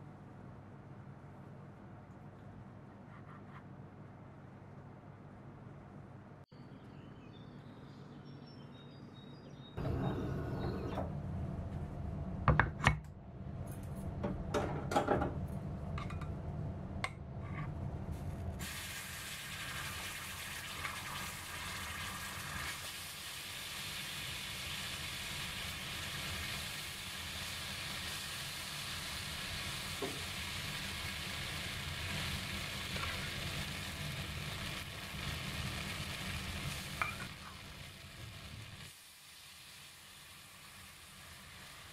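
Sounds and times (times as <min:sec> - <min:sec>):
food sizzling on hot plate: 0:18.6 - 0:41.9.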